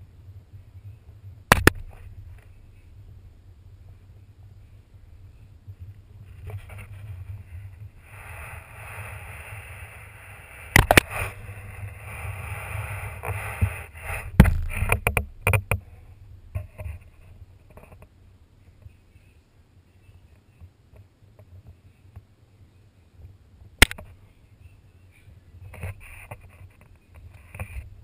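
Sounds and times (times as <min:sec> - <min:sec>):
rubbing hiss against camera: 0:06.2 - 0:15.2, 0:25.7 - 0:28.0.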